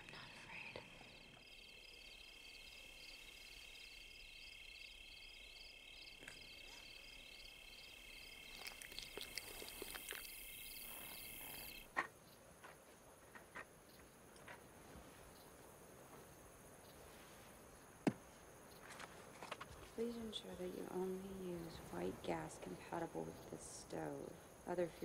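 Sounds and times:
faint high hissing: 0.0s - 11.9s
crickets trilling: 0.0s - 25.0s.

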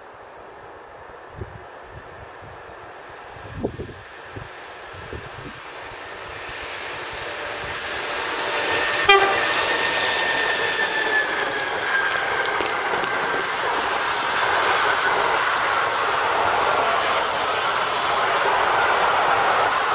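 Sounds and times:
rumble of passing wagons: 0.2s - 19.9s
freight train rolling past: 0.7s - 19.9s
short train horn toot: 9.0s - 9.9s.

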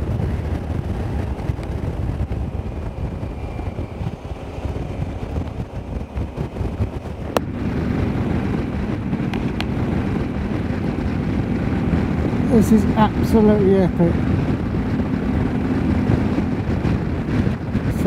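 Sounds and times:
motorcycle engine humming: 0.0s - 18.0s
wind buffeting microphone: 0.0s - 18.0s.

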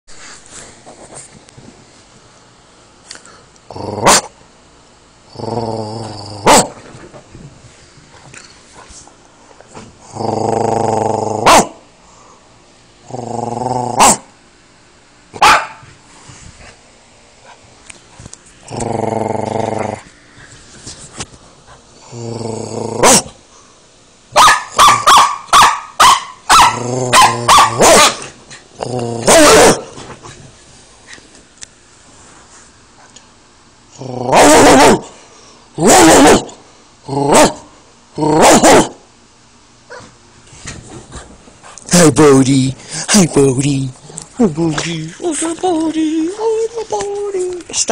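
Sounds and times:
dog growling: 3.7s - 4.3s, 5.3s - 6.7s, 10.0s - 11.8s, 13.0s - 14.3s, 18.6s - 20.1s, 22.0s - 23.4s, 26.7s - 30.0s, 33.9s - 35.1s, 43.9s - 44.9s
dog barking: 4.0s - 4.3s, 6.4s - 6.8s, 11.4s - 11.8s, 14.0s - 14.3s, 15.4s - 15.8s, 24.3s - 28.3s, 29.3s - 29.9s, 34.3s - 35.1s, 35.8s - 36.6s, 37.3s - 37.6s, 38.4s - 39.0s.

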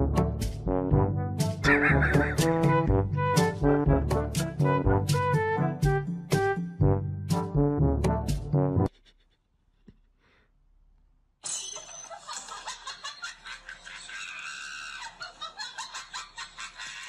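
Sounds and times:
person laughing hard: 1.6s - 2.6s, 12.2s - 17.0s.

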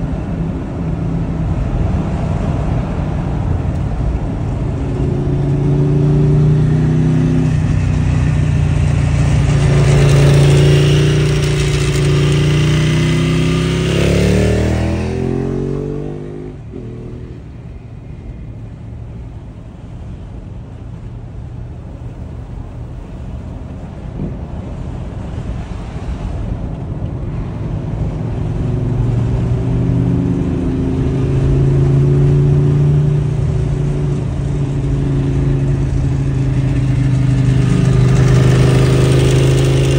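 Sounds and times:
road noise inside car: 0.0s - 39.9s
motorcycle exhaust revving: 4.5s - 17.6s, 28.3s - 39.9s.

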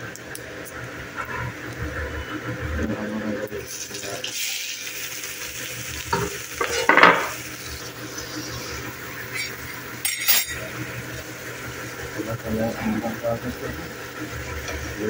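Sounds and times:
onions sizzling in hot oil: 3.5s - 15.0s
clattering in a pan: 6.1s - 7.4s, 9.3s - 10.7s.

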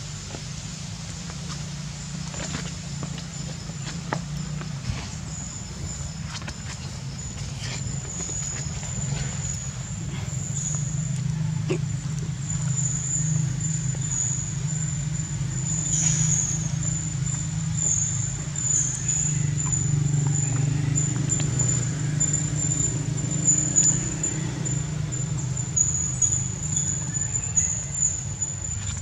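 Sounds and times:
constant low hum: 0.0s - 29.0s
high-pitched insect drone: 8.1s - 28.8s.

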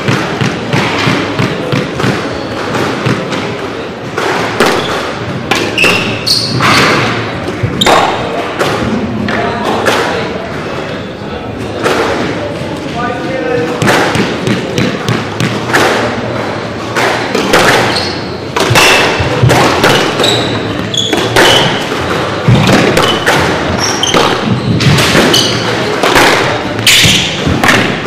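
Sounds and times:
squash ball hits: 0.0s - 10.4s, 11.7s - 12.5s, 13.6s - 28.0s
shoes squeaking on wooden floor: 1.1s - 3.9s, 4.7s - 8.3s, 17.6s - 26.0s.

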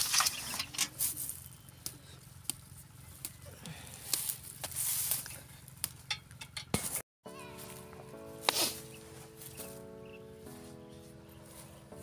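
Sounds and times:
background music with held notes: 7.3s - 12.0s.

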